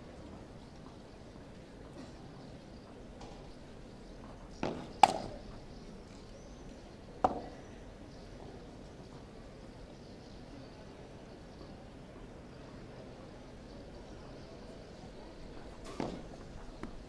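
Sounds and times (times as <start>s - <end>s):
ball struck by rackets: 4.6s - 5.4s, 7.2s - 7.5s.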